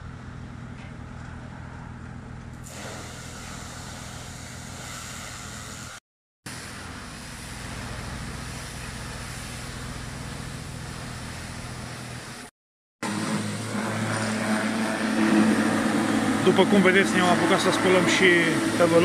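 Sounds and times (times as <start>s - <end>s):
pressure washer jet hissing: 2.6s - 19.0s
machine hum: 6.6s - 19.0s.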